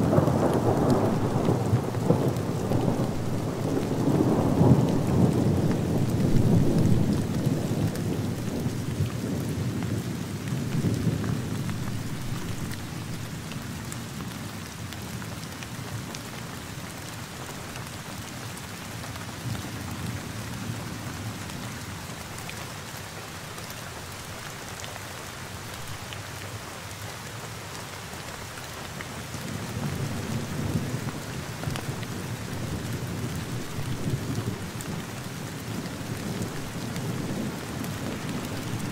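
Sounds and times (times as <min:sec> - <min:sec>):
thunder rumbling: 0:00.0 - 0:13.2, 0:35.6 - 0:38.9
steady rain: 0:00.0 - 0:38.9.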